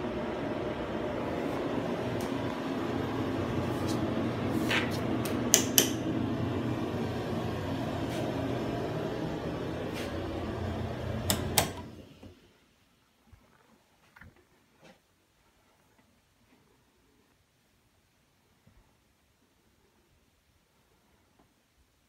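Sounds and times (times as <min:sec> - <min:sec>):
steady mechanical hum: 0:00.0 - 0:12.6
sharp clicks and knocks: 0:05.2 - 0:06.0.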